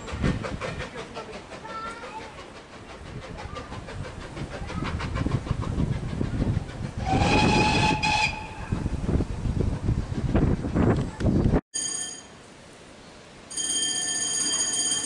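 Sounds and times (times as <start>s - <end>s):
steam locomotive rumbling: 0.0s - 11.6s
steam whistle blast: 7.0s - 8.6s.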